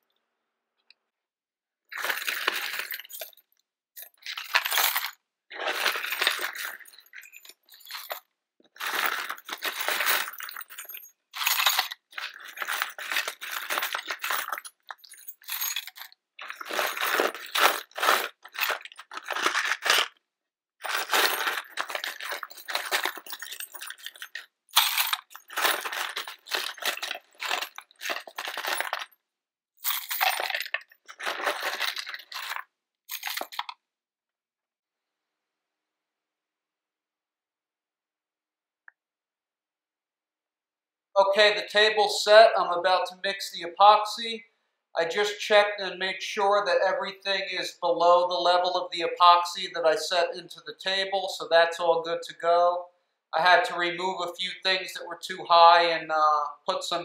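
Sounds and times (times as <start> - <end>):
coins and keys jingling: 1.9 - 20.1, 20.8 - 29.2, 29.8 - 33.8.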